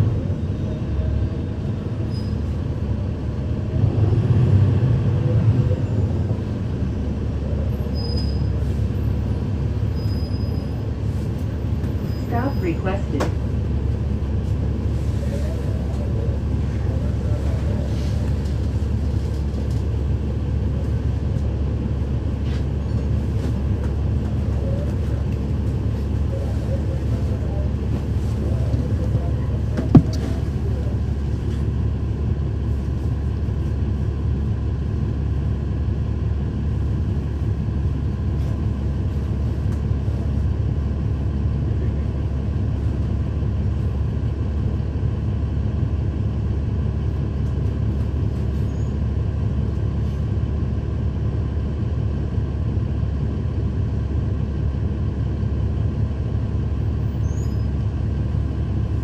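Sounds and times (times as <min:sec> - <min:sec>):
diesel bus engine droning: 0:00.0 - 0:59.0
sharp knock: 0:29.8 - 0:30.3.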